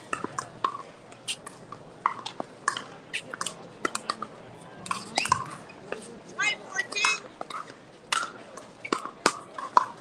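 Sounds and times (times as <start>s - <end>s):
paddles hitting plastic ball: 7.0s - 10.0s.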